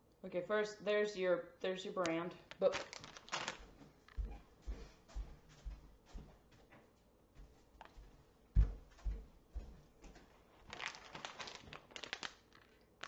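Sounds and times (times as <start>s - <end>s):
plush toy rustling: 2.6s - 4.8s, 10.3s - 12.3s
footsteps on a floor: 3.6s - 10.6s.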